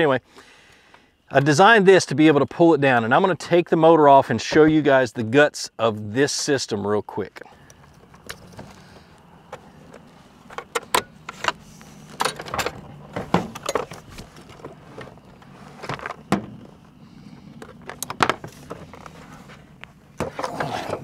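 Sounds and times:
clicks knocks and rattles of handling: 9.5 - 15.2.

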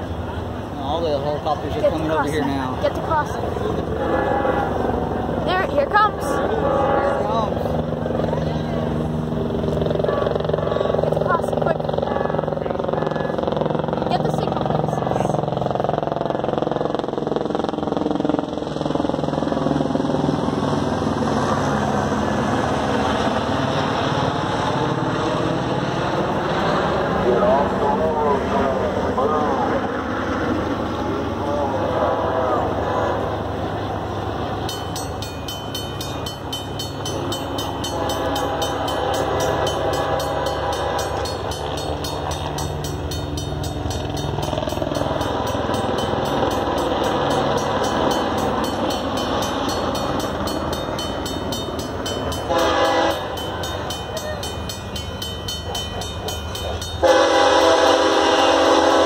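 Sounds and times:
heavy engine drone: 0.0 - 59.0
train horn chord: 3.9 - 5.2, 5.9 - 7.8, 37.6 - 42.6, 52.3 - 54.0, 55.9 - 59.0.

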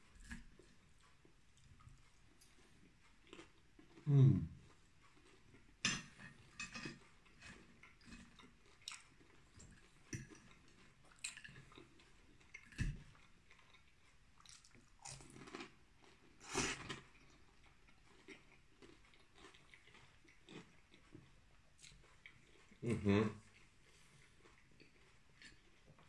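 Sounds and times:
chewing with wet mouth clicks: 0.2 - 22.8, 23.4 - 26.0
person humming mmm: 4.1 - 4.6.

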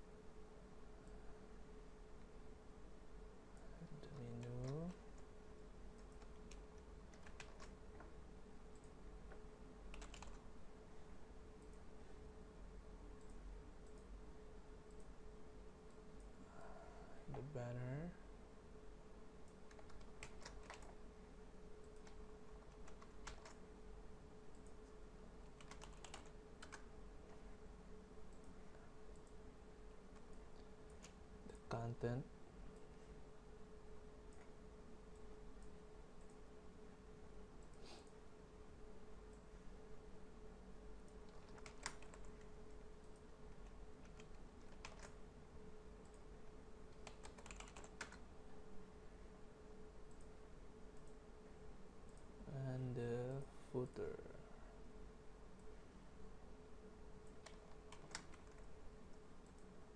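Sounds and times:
steady low hum: 0.0 - 59.9
computer keyboard keystrokes: 4.1 - 5.3, 6.0 - 8.1, 8.7 - 10.4, 19.4 - 21.0, 21.8 - 23.6, 25.4 - 26.9, 41.0 - 45.2, 46.9 - 48.2, 57.2 - 58.7.

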